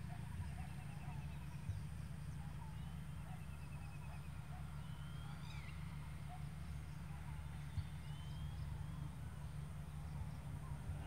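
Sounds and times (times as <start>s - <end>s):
low steady rumble: 0.0s - 11.0s
birds chirping and trilling: 0.1s - 11.0s.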